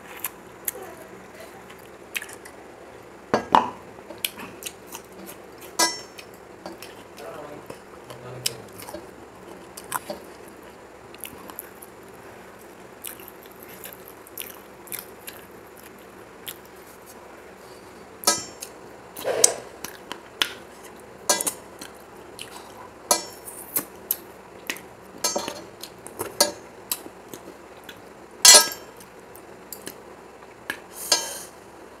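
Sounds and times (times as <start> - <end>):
chewing and mouth clicks: 1.7 - 2.6, 8.0 - 12.0, 13.0 - 16.8, 21.8 - 22.8.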